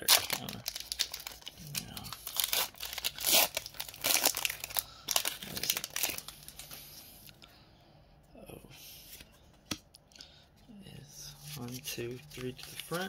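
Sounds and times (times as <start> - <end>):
foil wrapper tearing and crinkling: 0.0 - 6.6.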